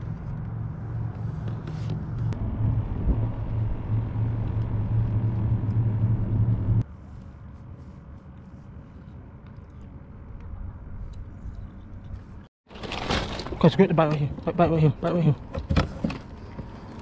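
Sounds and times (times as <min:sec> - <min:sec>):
low motor hum: 0:00.0 - 0:06.8.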